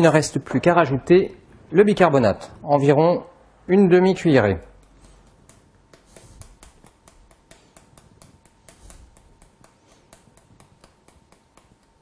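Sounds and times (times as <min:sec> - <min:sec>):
canister tapping: 0:04.8 - 0:12.0.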